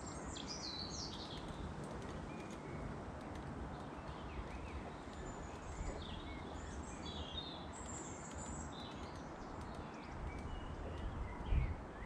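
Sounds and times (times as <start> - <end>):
songbirds chirping: 0.0 - 12.0
faint ticks: 7.7 - 11.2.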